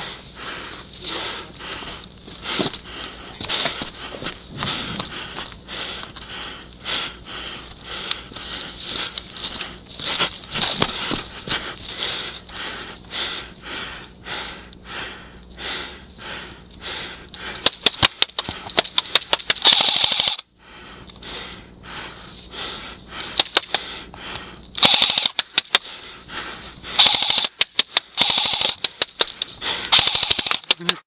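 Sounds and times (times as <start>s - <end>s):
airsoft rifle firing bursts: 17.6s - 20.4s, 24.8s - 25.9s, 27.0s - 31.0s.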